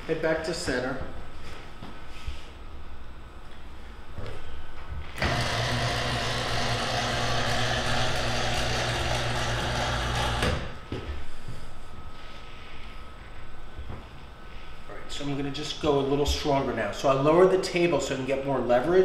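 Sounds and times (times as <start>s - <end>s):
electric motor humming: 5.2s - 10.8s.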